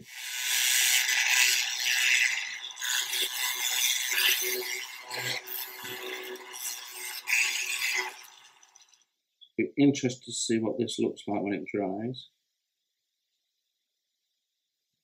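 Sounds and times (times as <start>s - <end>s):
rotary tool motor whine: 0.0s - 9.0s
tool bit scraping and rattling: 0.0s - 9.0s.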